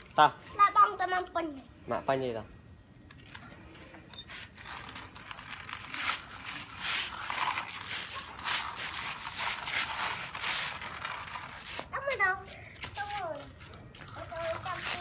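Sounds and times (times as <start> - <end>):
toy truck wheels scraping sand: 4.4 - 12.0.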